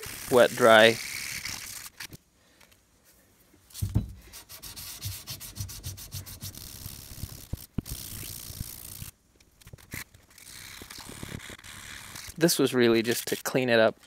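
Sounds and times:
hammer head scraping on sandpaper: 3.8 - 8.7.

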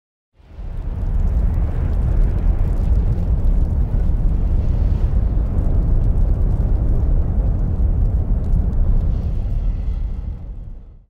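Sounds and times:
loud deep rumble: 0.4 - 11.0.

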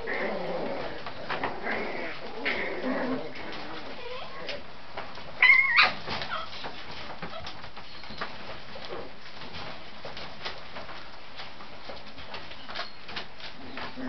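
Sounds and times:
puppies scuffling: 0.0 - 14.0
puppies whimpering: 5.4 - 6.6
puppy squeal: 5.4 - 6.6.

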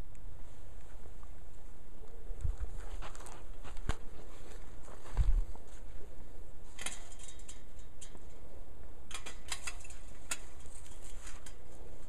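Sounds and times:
low steady rumble: 0.0 - 12.0
sharp light clicks and ticks: 6.8 - 11.6.

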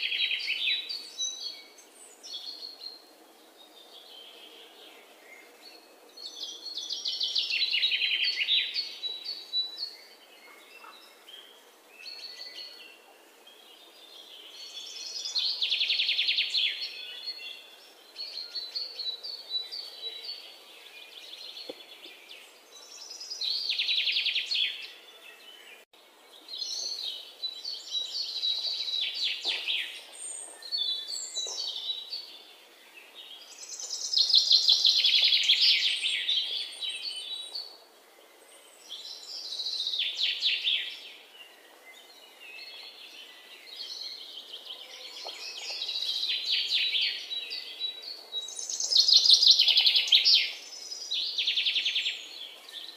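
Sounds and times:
songbird trills: 3.7 - 52.9.

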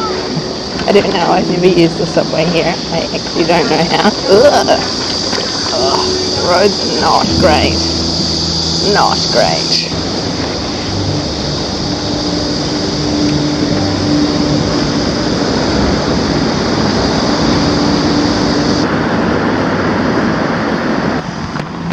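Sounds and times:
street traffic: 0.0 - 21.9.

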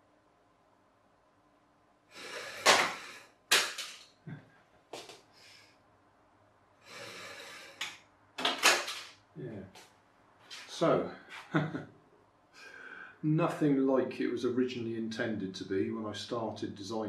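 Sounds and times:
sharp plastic knocks: 7.8 - 9.1.

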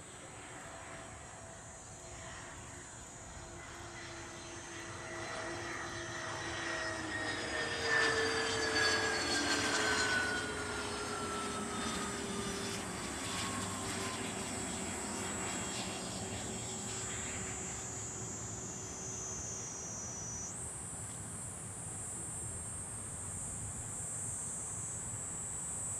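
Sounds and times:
jet engines whining: 2.6 - 20.5.

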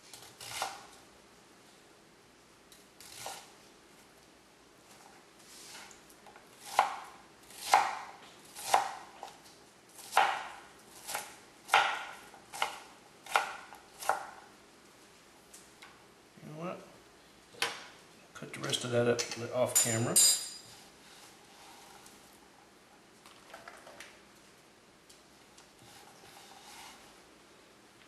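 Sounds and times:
knife chopping onion on board: 6.6 - 9.2, 10.0 - 14.4.

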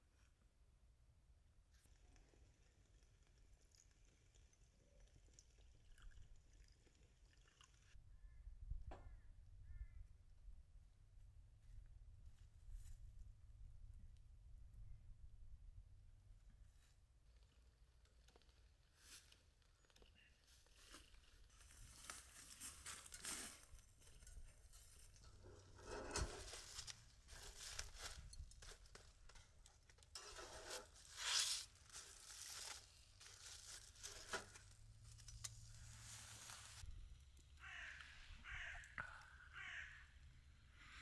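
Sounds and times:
rustling and tearing: 20.7 - 36.8
crow cawing: 37.6 - 40.2.

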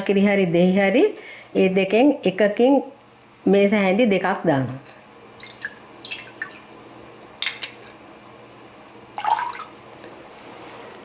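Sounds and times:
liquid splashing and dripping: 5.4 - 6.7.

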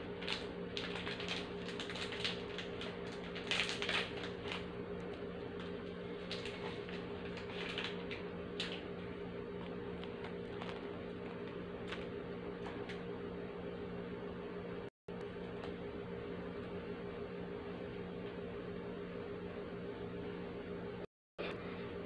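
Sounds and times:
biscuit crunching: 0.0 - 13.0
steady low hum: 0.0 - 22.0.

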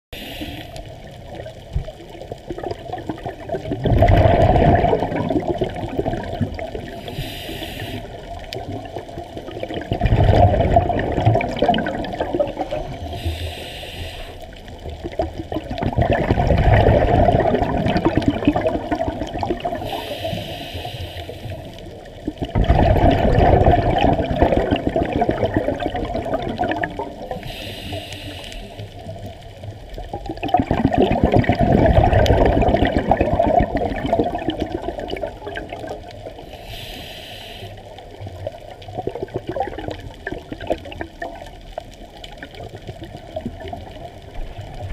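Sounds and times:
regulator inhalation hiss: 0.2 - 1.0, 6.9 - 8.4, 12.6 - 14.6, 19.8 - 21.8, 27.3 - 29.1, 36.4 - 38.0
exhaled bubbles gushing: 0.2 - 13.7, 14.5 - 28.2, 28.9 - 36.5, 37.9 - 44.9.

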